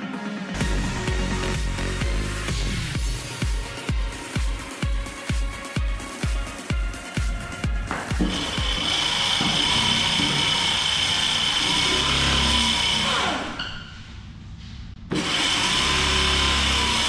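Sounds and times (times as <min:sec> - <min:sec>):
hub motor whine: 0:08.0 - 0:13.9.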